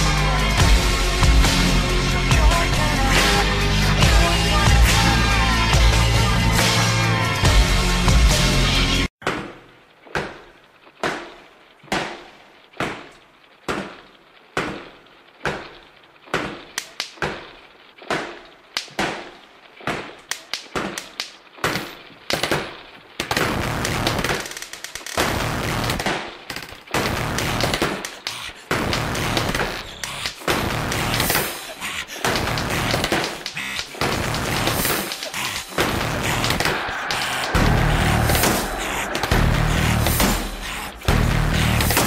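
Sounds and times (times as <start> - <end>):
rapid gunfire: 23.3 - 42.0.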